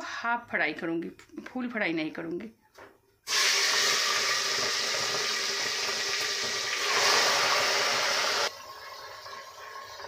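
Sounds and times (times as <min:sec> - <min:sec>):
chicken sizzling in hot oil: 0:03.3 - 0:10.0.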